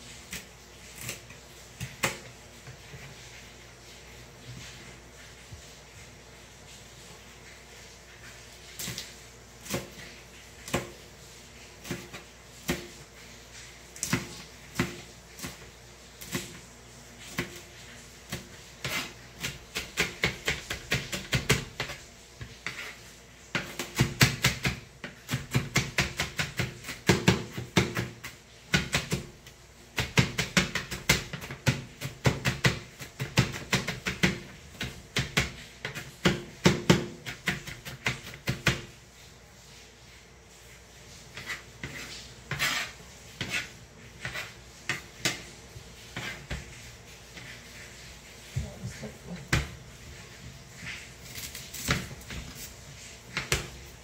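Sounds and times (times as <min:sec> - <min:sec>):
knife chopping on plastic board: 0:11.8 - 0:13.0, 0:14.0 - 0:16.6, 0:18.3 - 0:22.0, 0:23.6 - 0:29.3, 0:30.0 - 0:38.9, 0:53.3 - 0:53.8.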